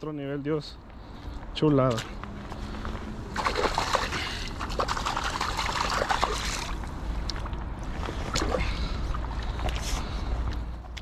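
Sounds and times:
river water splashing: 3.2s - 7.5s.

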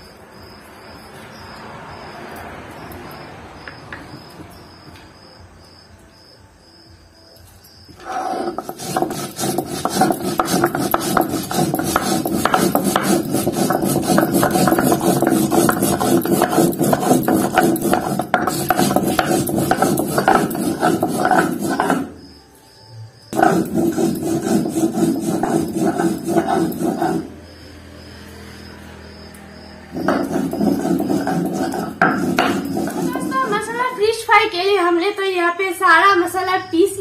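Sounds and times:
stone grinding on stone slab: 8.0s - 22.3s, 23.3s - 27.4s, 29.9s - 34.0s.

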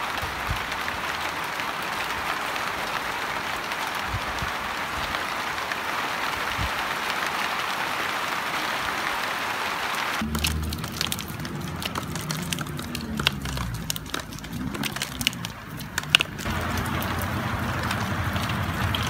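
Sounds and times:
steady rain patter: 0.0s - 19.0s
low rumble: 10.2s - 19.0s
raindrops tapping on dry leaves: 10.2s - 19.0s.

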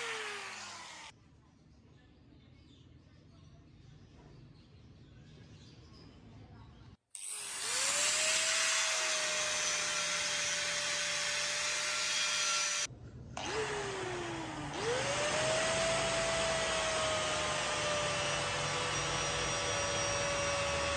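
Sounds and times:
electric motor whine: 0.0s - 1.1s, 7.2s - 20.9s.

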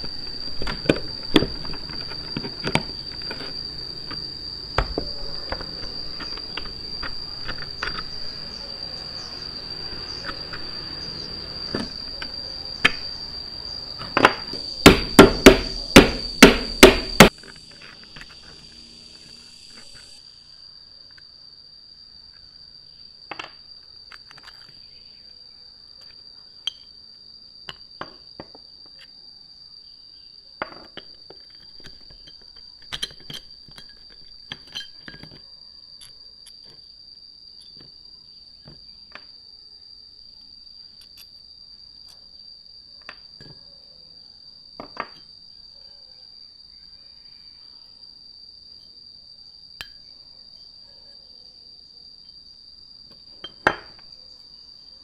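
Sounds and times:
high insect drone: 0.0s - 55.0s
loud metal strikes: 14.8s - 17.3s.

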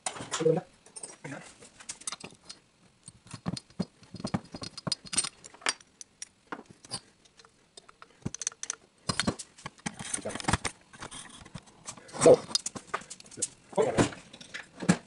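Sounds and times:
metal engine parts clinking: 2.0s - 9.4s.

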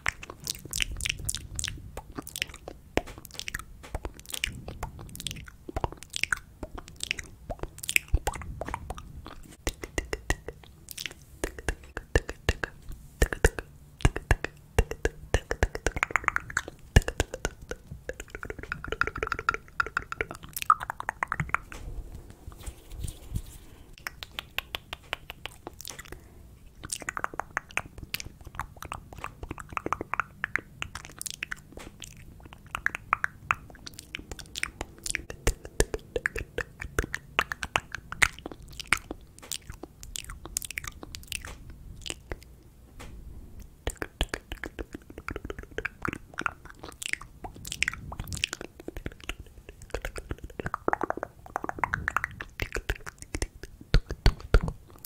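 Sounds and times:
wet mouth clicks and lip smacks: 0.0s - 21.8s, 24.0s - 42.6s, 43.6s - 55.0s.

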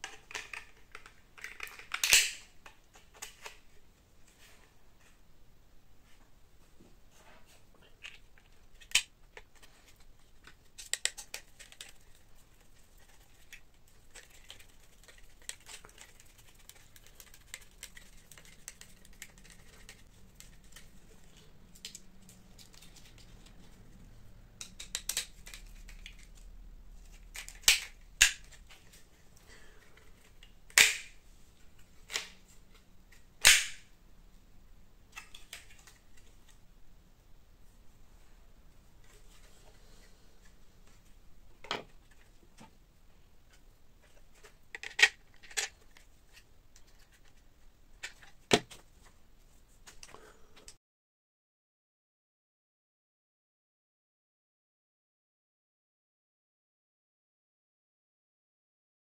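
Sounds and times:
plastic parts and screws clicking: 0.0s - 3.6s, 24.6s - 29.0s, 43.5s - 47.4s
loud snaps: 30.7s - 31.2s, 33.4s - 33.9s.

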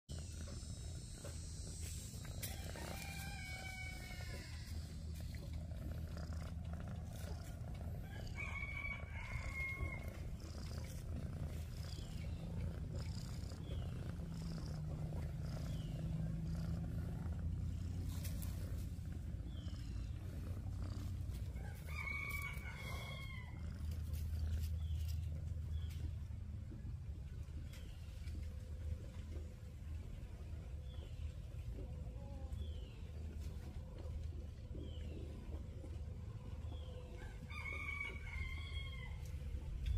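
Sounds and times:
cat purring: 0.1s - 37.5s
rooster crowing: 2.3s - 5.0s, 8.0s - 10.3s, 21.6s - 23.8s, 37.2s - 39.3s.

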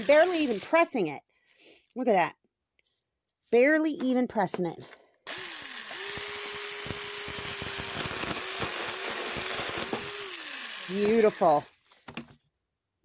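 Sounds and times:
electric chainsaw cutting wood: 0.0s - 0.8s, 5.3s - 11.8s.

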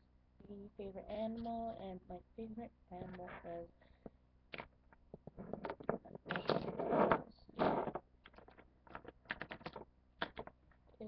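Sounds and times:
objects rustling close to microphone: 5.1s - 9.8s.

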